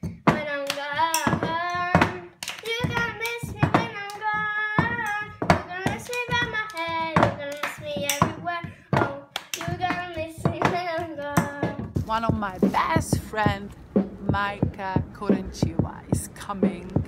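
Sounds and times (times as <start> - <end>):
hands clapping: 0.7 - 11.5.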